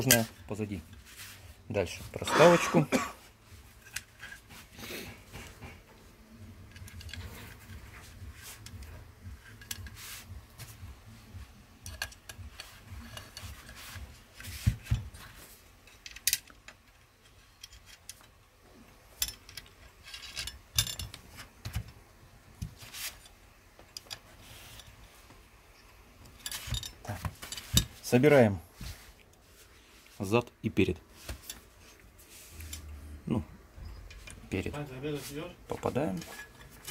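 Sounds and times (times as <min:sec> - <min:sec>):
air rifle parts clicking and tapping: 0:06.5 - 0:10.6, 0:11.8 - 0:15.2, 0:15.8 - 0:18.4, 0:19.1 - 0:22.0, 0:22.6 - 0:25.0.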